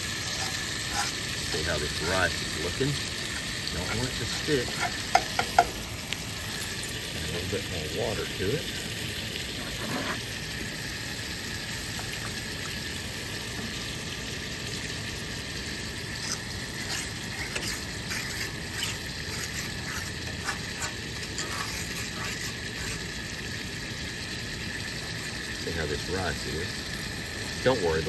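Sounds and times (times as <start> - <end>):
rice sizzling in a skillet: 0.0 - 28.0
metal utensil scraping a pan: 0.2 - 2.3, 3.2 - 5.8, 9.5 - 10.3, 16.2 - 23.2.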